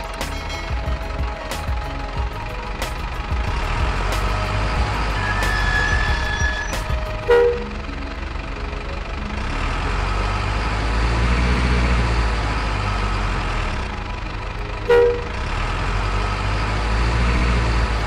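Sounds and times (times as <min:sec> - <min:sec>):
truck engine rumbling: 0:00.0 - 0:18.0
truck horn toot: 0:04.6 - 0:07.8, 0:14.8 - 0:15.5.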